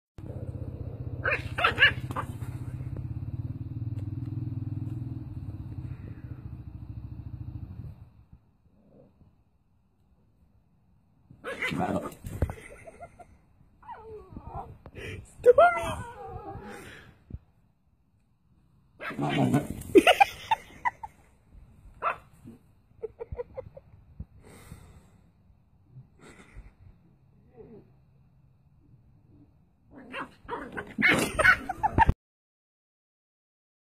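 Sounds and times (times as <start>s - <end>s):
puppy yapping: 1.2s - 2.4s.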